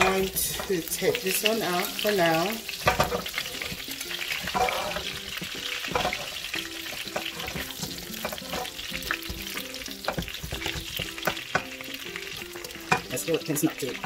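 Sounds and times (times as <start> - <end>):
background music: 0.0 - 14.0
metal turner scraping pan: 0.0 - 14.0
pork sizzling in a wok: 0.0 - 14.0.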